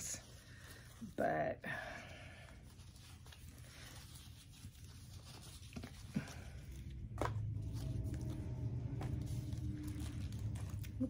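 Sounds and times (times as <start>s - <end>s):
low steady hum: 0.0s - 11.0s
plant leaves rustling: 2.6s - 11.0s.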